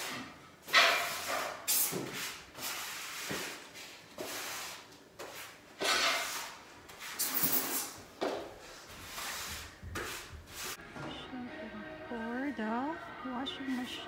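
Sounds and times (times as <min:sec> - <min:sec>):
tool scraping over floor tiles: 0:00.0 - 0:10.8.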